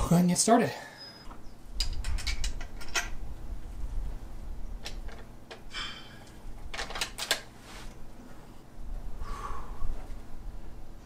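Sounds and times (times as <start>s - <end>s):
rifle clicks and rattles: 1.8s - 3.2s, 6.3s - 7.5s.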